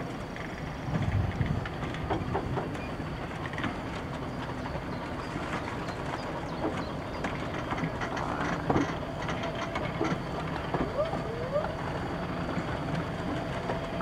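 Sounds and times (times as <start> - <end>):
train rumble: 0.0 - 14.0
train wheels clicking on rail joints: 0.0 - 14.0.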